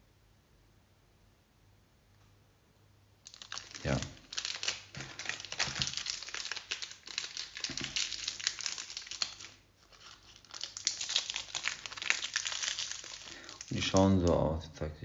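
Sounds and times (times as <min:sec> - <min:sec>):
foil wrapper crinkling: 0:03.2 - 0:14.4.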